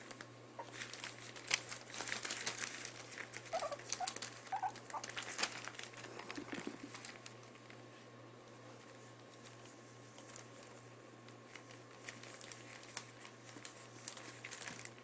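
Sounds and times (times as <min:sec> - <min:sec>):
newspaper rustling and crinkling: 0:00.0 - 0:08.0, 0:08.7 - 0:15.0
paws pattering clicks: 0:00.1 - 0:07.8
puppy squeaks: 0:03.5 - 0:05.1.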